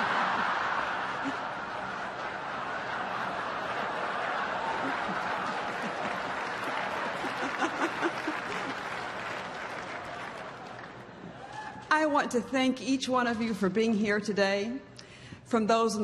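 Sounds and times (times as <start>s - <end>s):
crowd applauding: 0.0s - 11.9s.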